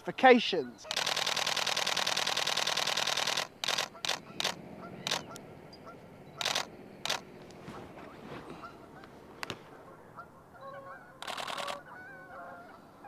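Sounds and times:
camera shutter firing: 0:00.9 - 0:05.4, 0:06.4 - 0:07.2, 0:11.2 - 0:11.8.

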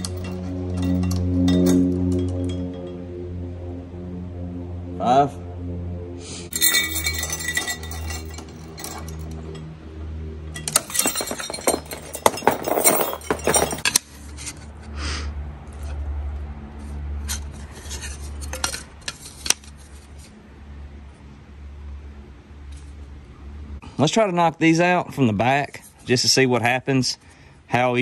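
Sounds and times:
chain and weight plates clinking: 0:00.0 - 0:03.0, 0:06.5 - 0:09.8, 0:10.5 - 0:14.1, 0:17.8 - 0:19.7.

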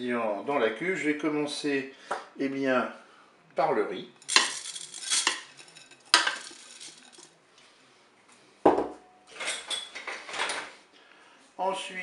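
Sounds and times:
rice grains pouring into pot: 0:04.2 - 0:07.3
glass bowl knocking on surface: 0:08.7 - 0:09.0.

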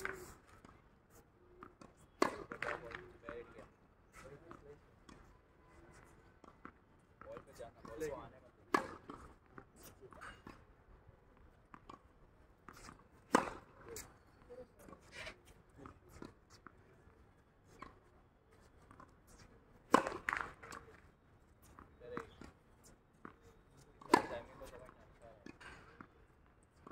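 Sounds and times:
tennis ball struck by racket: 0:02.2 - 0:03.0, 0:08.7 - 0:09.3, 0:12.7 - 0:14.1, 0:19.8 - 0:20.8, 0:24.0 - 0:24.7.

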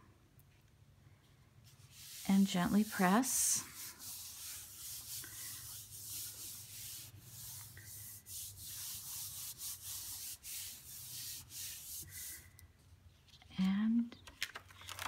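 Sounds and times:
hands rubbing paper: 0:01.6 - 0:12.5.

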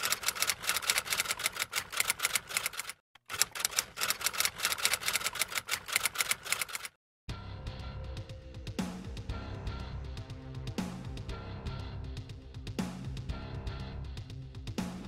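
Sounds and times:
typewriter key clacks: 0:00.0 - 0:06.9
background music: 0:07.3 - 0:15.0.

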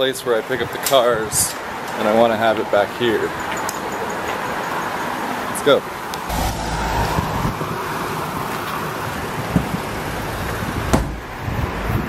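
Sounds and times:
rumbling vehicle noise: 0:06.3 - 0:08.6.

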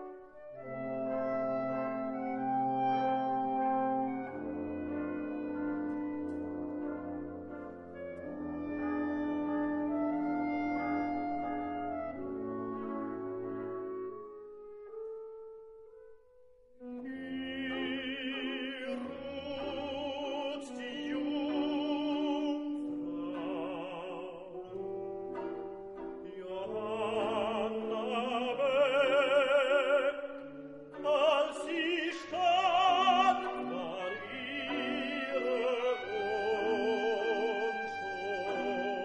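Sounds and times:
orchestral accompaniment: 0:00.0 - 0:15.9, 0:16.8 - 0:39.0
operatic singing with vibrato: 0:16.9 - 0:39.0.

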